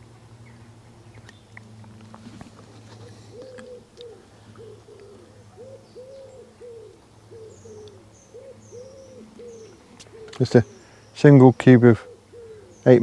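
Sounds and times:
bird hooting: 2.8 - 13.0.

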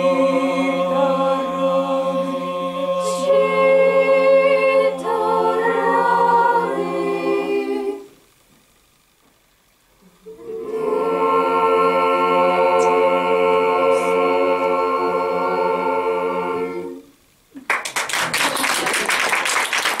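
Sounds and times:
vocal ensemble holding chord: 0.0 - 8.2, 10.1 - 17.2
applause: 17.6 - 20.0.

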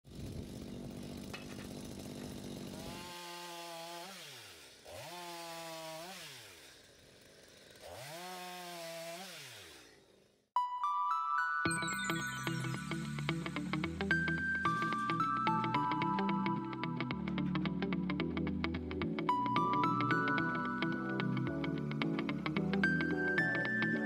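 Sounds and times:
chainsaw engine revving: 0.1 - 10.4.

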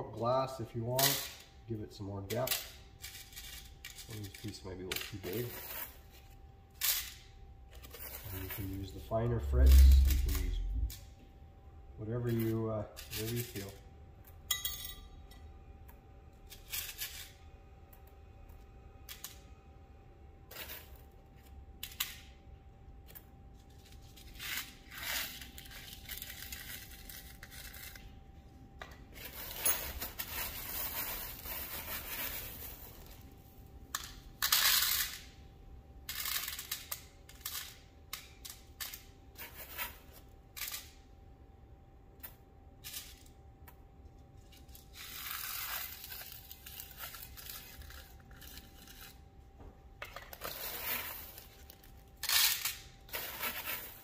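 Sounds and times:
glass pieces clinking: 14.5 - 15.1.

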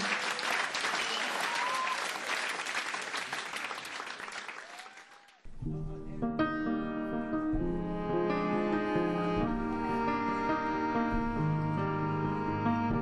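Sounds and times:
audience applauding: 0.0 - 5.5
whistles from audience: 0.8 - 2.6
piano playing slow chords: 5.5 - 13.0.

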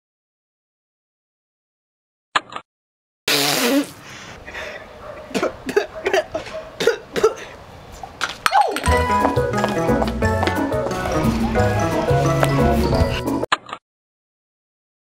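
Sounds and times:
woman coughing and sputtering: 5.3 - 7.6.

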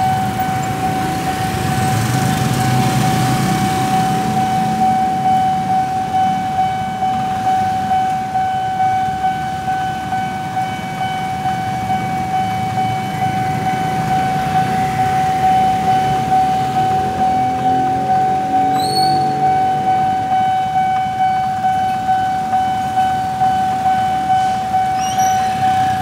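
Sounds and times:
motorcycle engines running: 0.0 - 7.2, 10.4 - 22.0
level crossing alarm pulsing tone: 0.0 - 26.0.

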